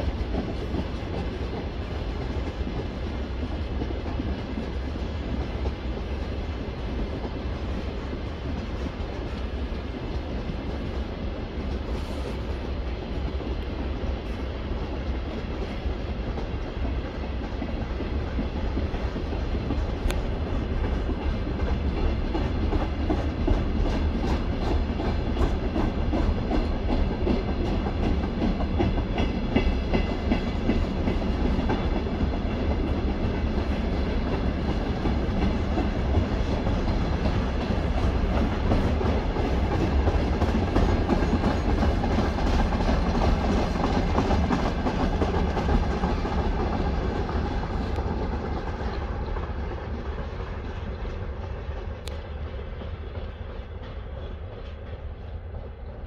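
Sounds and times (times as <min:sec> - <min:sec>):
steel wheels rumbling on rail: 0:00.0 - 0:56.0
wheels clicking over track: 0:14.8 - 0:55.0.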